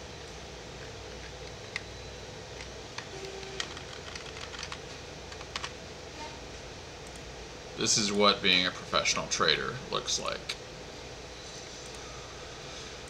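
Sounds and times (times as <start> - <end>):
low room hiss: 0.0 - 13.0
computer mouse and keyboard clicks: 2.6 - 5.7.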